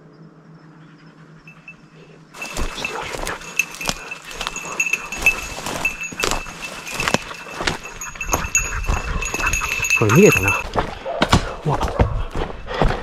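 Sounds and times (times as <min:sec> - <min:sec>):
small bell jingling: 0:01.5 - 0:10.6
footsteps crashing through dry leaves: 0:02.4 - 0:07.9.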